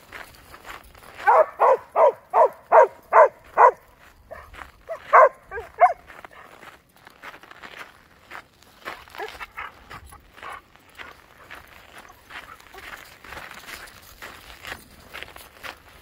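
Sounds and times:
dog barking: 1.2 - 6.5, 9.2 - 9.8.

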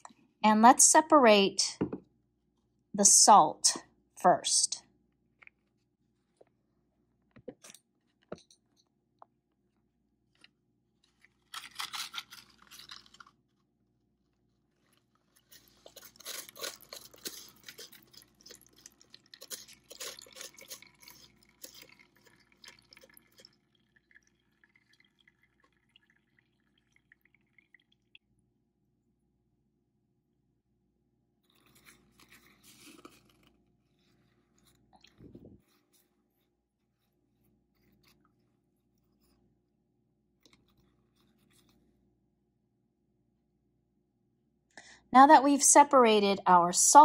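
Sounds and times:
water trickling and dripping: 20.8 - 28.3.

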